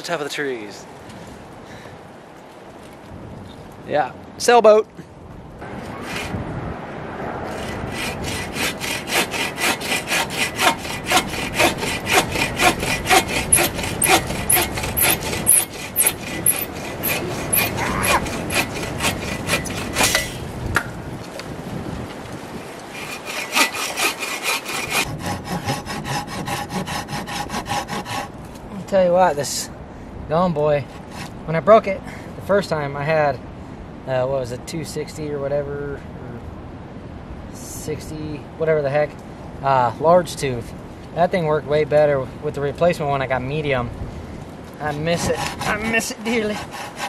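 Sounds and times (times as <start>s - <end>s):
hand saw cutting wood: 5.8s - 6.4s, 7.4s - 20.5s, 22.8s - 28.4s, 30.9s - 31.4s, 44.8s - 47.0s.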